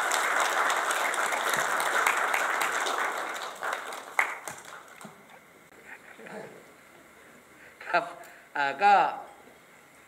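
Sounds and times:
audience applauding: 0:00.0 - 0:05.2.

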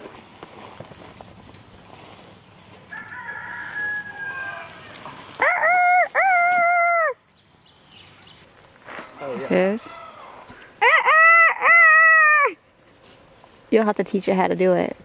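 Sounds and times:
roosters crowing: 0:02.8 - 0:07.2, 0:08.9 - 0:12.6.

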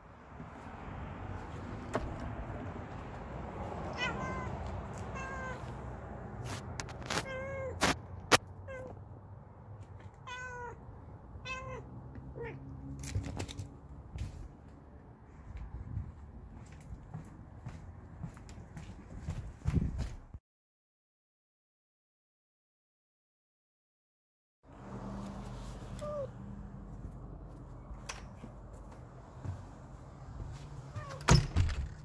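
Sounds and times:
cat meowing: 0:03.9 - 0:05.8, 0:07.0 - 0:08.0, 0:08.6 - 0:09.0, 0:10.1 - 0:10.8, 0:11.4 - 0:12.6, 0:26.0 - 0:26.3, 0:30.9 - 0:31.2.

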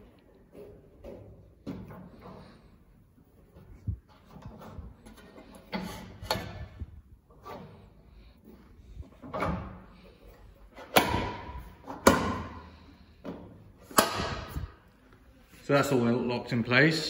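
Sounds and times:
metal clunks and clicks: 0:04.1 - 0:06.8.

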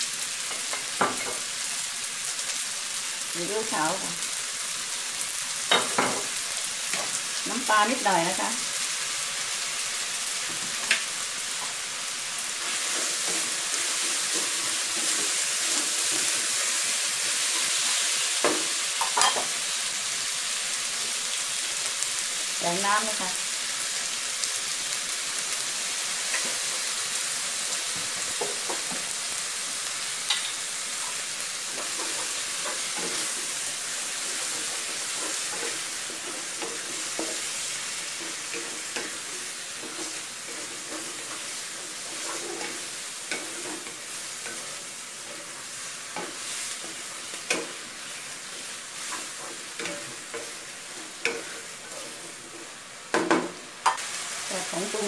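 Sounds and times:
stir-fry sizzling in a wok: 0:00.0 - 0:55.0
wooden spatula scraping wok: 0:12.4 - 0:19.6, 0:30.2 - 0:52.9.

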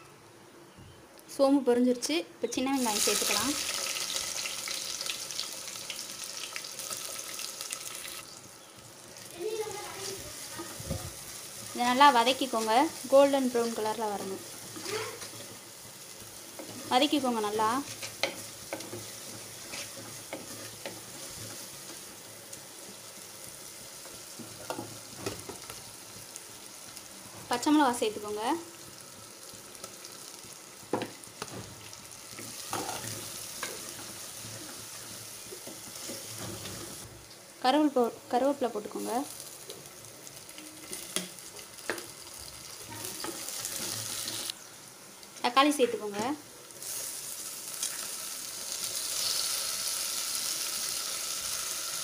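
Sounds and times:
onions sizzling in hot oil: 0:02.6 - 0:52.0
stirring scrapes: 0:17.8 - 0:21.7.

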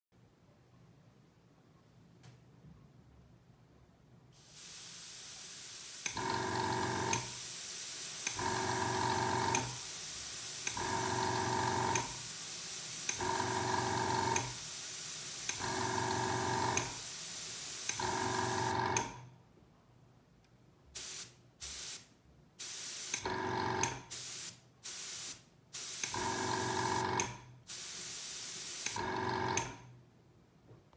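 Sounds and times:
airbrush air hissing: 0:04.4 - 0:18.7, 0:21.0 - 0:23.3, 0:24.1 - 0:27.0, 0:27.7 - 0:29.0
airbrush compressor humming: 0:05.7 - 0:14.7, 0:15.4 - 0:19.0, 0:26.0 - 0:27.2.

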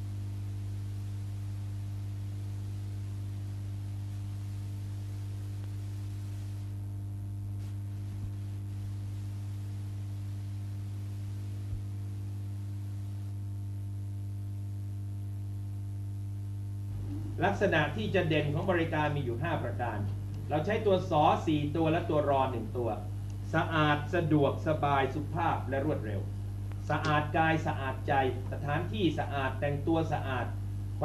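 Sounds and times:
faint hiss: 0:00.0 - 0:13.4
electrical mains hum: 0:00.0 - 0:31.0
faint clicks: 0:26.6 - 0:27.2.

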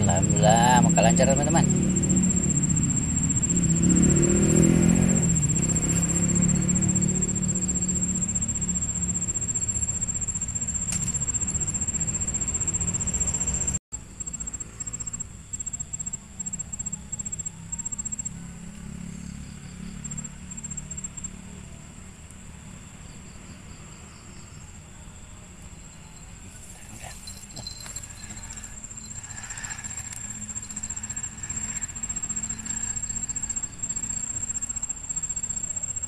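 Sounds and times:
insect trilling and chirping: 0:00.0 - 0:21.4, 0:23.0 - 0:36.0.

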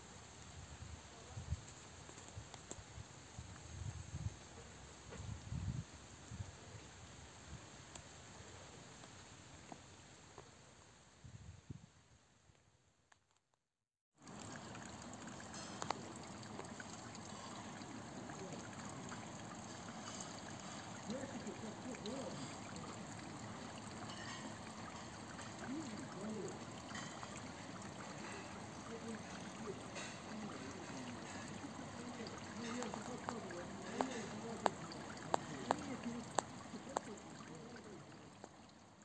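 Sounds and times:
water trickling over rocks: 0:00.0 - 0:11.0, 0:14.1 - 0:39.0
fountain jet splashing into pond: 0:14.2 - 0:39.0.

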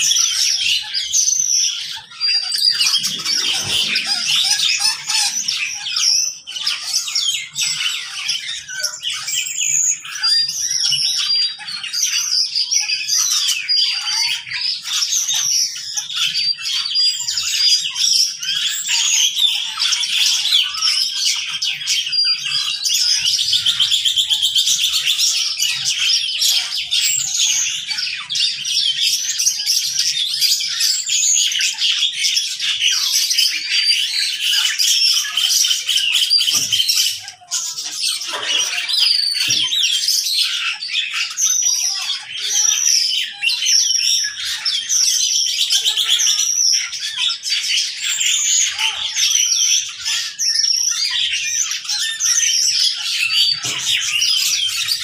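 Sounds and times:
rapid chattering bird trill: 0:00.0 - 0:11.6
birds chirping and squawking: 0:00.0 - 0:55.0.

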